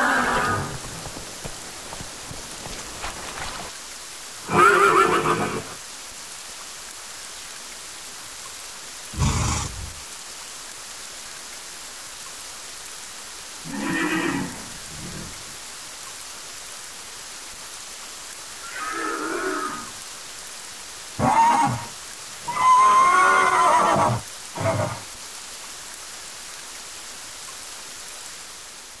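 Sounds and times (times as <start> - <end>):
horse-like snorts and whinnies: 0.0 - 3.6, 4.4 - 5.8, 9.1 - 10.0, 13.6 - 15.6, 18.6 - 19.9, 21.2 - 25.0
steady rain: 0.0 - 29.0.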